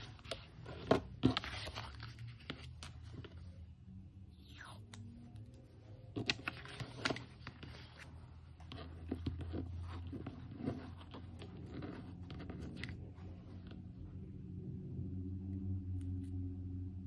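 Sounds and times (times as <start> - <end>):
paper rustling and scratching: 0.0 - 3.6, 6.0 - 13.9
low steady hum: 0.0 - 17.0.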